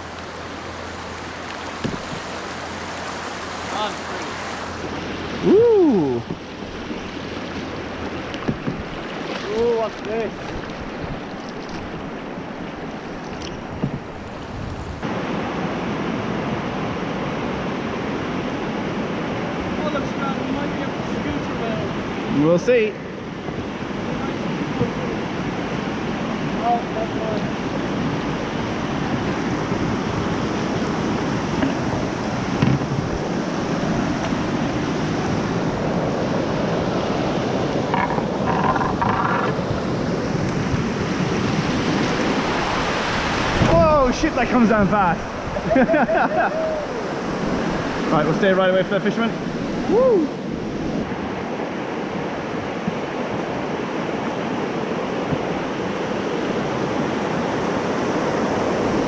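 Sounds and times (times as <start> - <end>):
rushing river water: 0.0 - 59.0
wind buffeting microphone: 4.7 - 15.0, 23.2 - 59.0.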